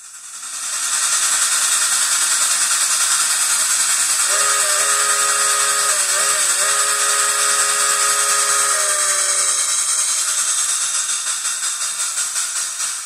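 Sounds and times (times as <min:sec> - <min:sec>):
electronic steam hiss: 0:00.0 - 0:13.0
chime-like steam whistle: 0:04.0 - 0:11.1.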